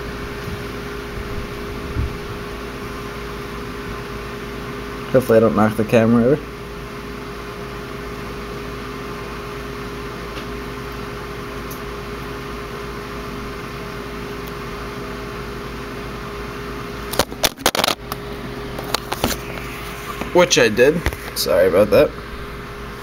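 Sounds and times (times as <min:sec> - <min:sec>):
steady mechanical hum: 0:00.0 - 0:23.0
camera knocked over clatter: 0:17.1 - 0:18.2, 0:18.8 - 0:19.4.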